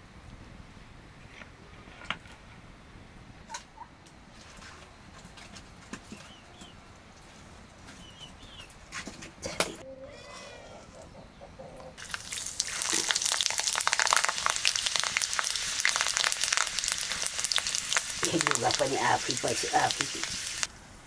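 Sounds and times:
food sizzling in a pan: 0:12.0 - 0:20.7
person speaking: 0:18.2 - 0:20.3.

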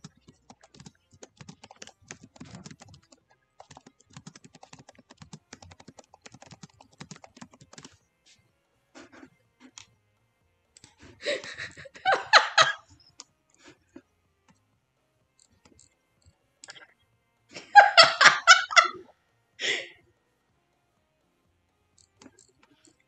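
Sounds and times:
person laughing: 0:11.1 - 0:12.9, 0:17.5 - 0:19.9.

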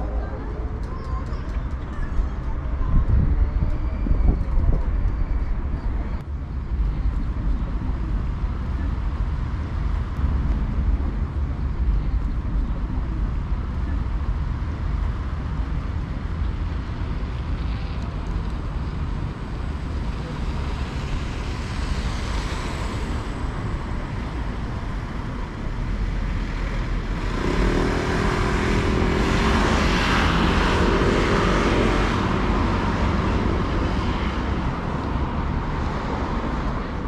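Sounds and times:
road traffic rumble: 0:00.0 - 0:37.0
vehicle passing close by: 0:27.0 - 0:37.0.

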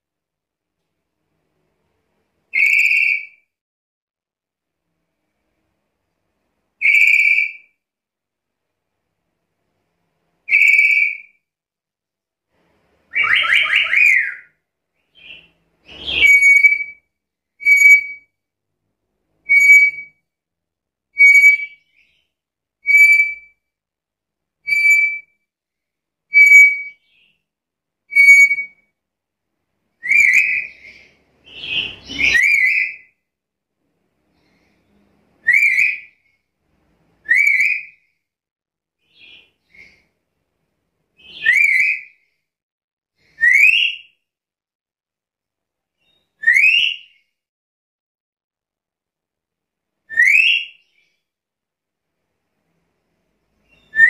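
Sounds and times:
parrot whistling calls: 0:02.5 - 0:03.4, 0:06.8 - 0:07.6, 0:10.5 - 0:11.3, 0:13.1 - 0:14.5, 0:15.2 - 0:17.0, 0:17.6 - 0:18.2, 0:19.5 - 0:20.1, 0:30.0 - 0:33.1, 0:35.4 - 0:36.1, 0:37.3 - 0:38.0, 0:41.2 - 0:42.1, 0:43.4 - 0:44.1, 0:46.4 - 0:47.1, 0:50.1 - 0:50.8
harsh bird calls: 0:13.1 - 0:17.0, 0:30.0 - 0:33.1, 0:39.0 - 0:40.1.

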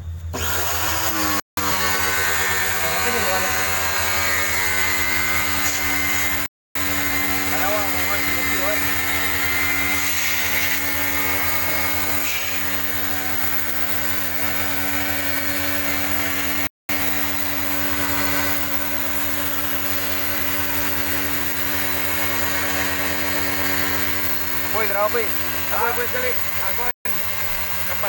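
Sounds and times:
pressure washer motor running: 0:00.3 - 0:28.0
water jet hissing: 0:10.0 - 0:11.4, 0:12.2 - 0:13.0.

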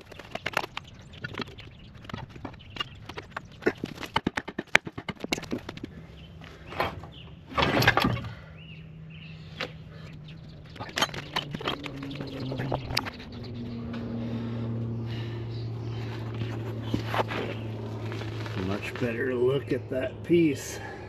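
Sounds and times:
jack wheels clattering on pavement: 0:09.6 - 0:13.2.

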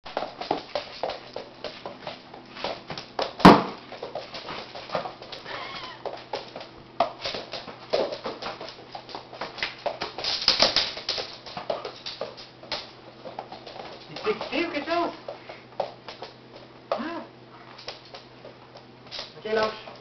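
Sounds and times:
loud sharp knock: 0:03.4 - 0:03.8
puppy whimpering: 0:05.4 - 0:06.0.

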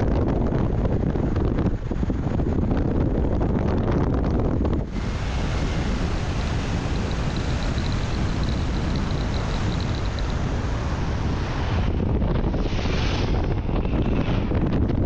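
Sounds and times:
vehicle road and wind noise: 0:00.0 - 0:15.0
faint high pulsing tone: 0:04.9 - 0:11.0.

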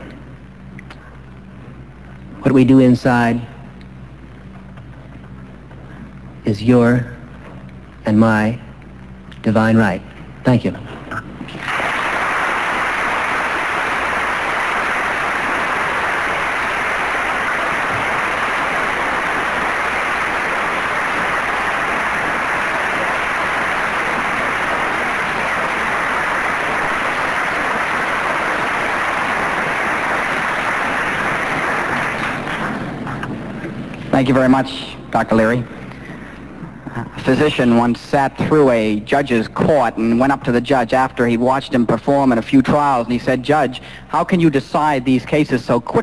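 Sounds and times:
audience applauding: 0:11.5 - 0:34.5.

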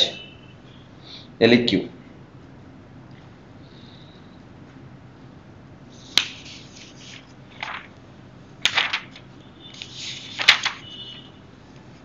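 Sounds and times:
short rustling: 0:08.6 - 0:12.0.

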